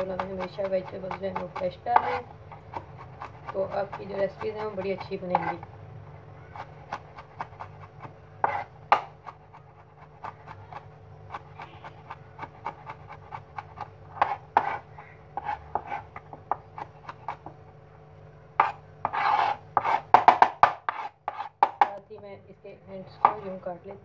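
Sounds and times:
knife chopping on cutting board: 0.0s - 5.6s, 6.5s - 17.6s, 18.6s - 21.9s.

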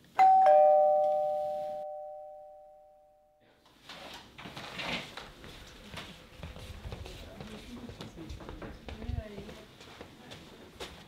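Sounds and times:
two-tone doorbell chime: 0.2s - 3.4s.

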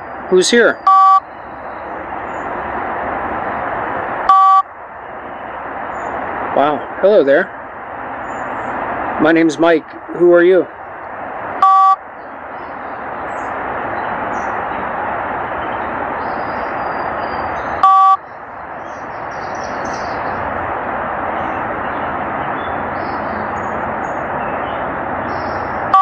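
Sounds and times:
static hiss from phone speaker: 0.4s - 1.3s, 4.2s - 4.7s, 11.6s - 12.0s, 17.8s - 18.2s
two-tone electronic beep: 0.8s - 1.3s, 4.3s - 4.7s, 11.6s - 12.0s, 17.8s - 18.2s.

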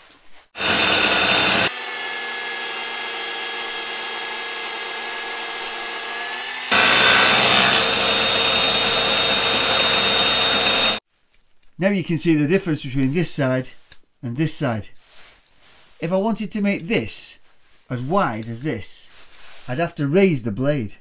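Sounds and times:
table saw cutting wood: 0.6s - 11.0s.

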